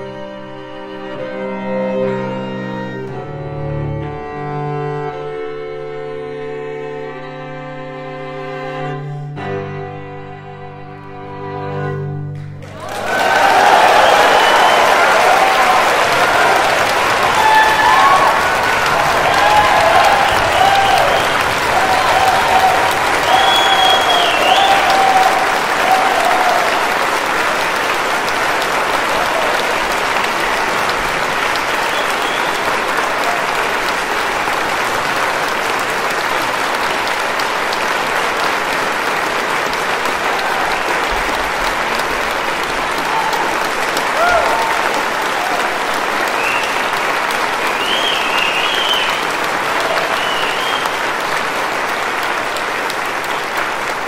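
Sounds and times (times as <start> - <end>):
audience applause: 12.6 - 54.0.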